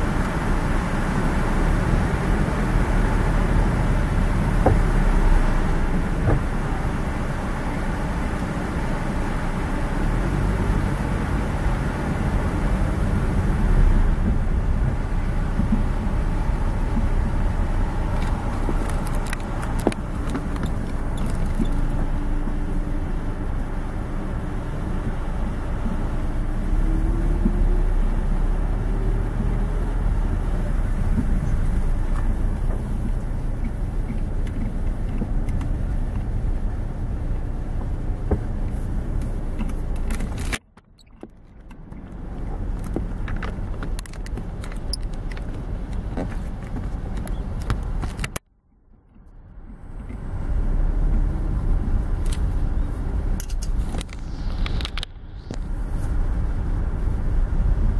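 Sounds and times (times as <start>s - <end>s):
car engine and road noise: 0.0s - 57.9s
small clicks and rattles: 18.1s - 22.1s, 38.7s - 48.4s.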